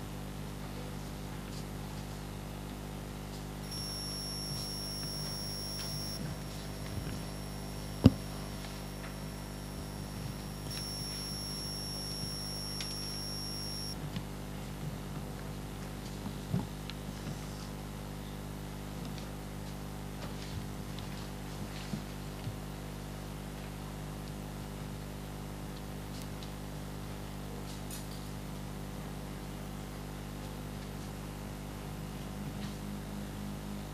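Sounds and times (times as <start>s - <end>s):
faint high-pitched whine: 3.6s - 14.0s
low hum: 3.7s - 14.0s.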